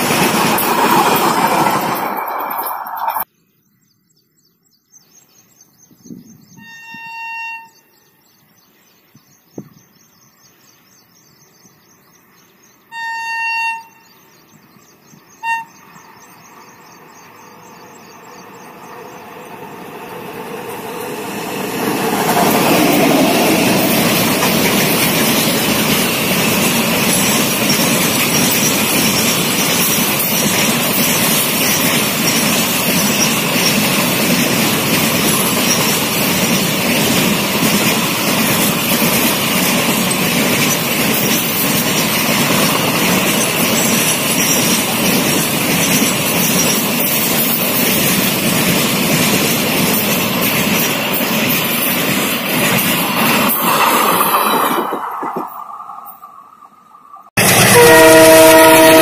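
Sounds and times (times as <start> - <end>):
train wheels on rails: 0.0 - 3.3, 15.8 - 59.0
locomotive horn: 6.5 - 7.9, 12.9 - 14.0, 15.4 - 15.8, 57.4 - 59.0.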